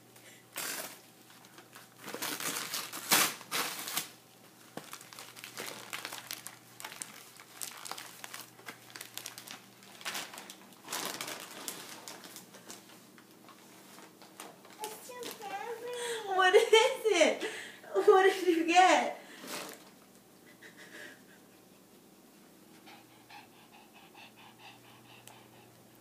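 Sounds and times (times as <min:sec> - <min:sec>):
wrapping paper crinkling and tearing: 0:00.5 - 0:15.9.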